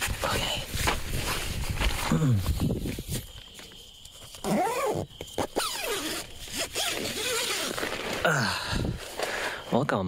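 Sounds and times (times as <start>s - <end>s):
tent zipper being pulled: 4.4s - 8.3s.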